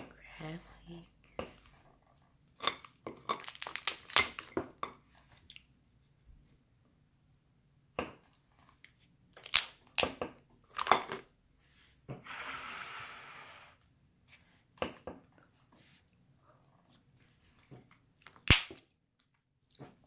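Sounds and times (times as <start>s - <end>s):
crab shells cracking: 3.4s - 4.5s
scratchy noise: 12.2s - 13.8s.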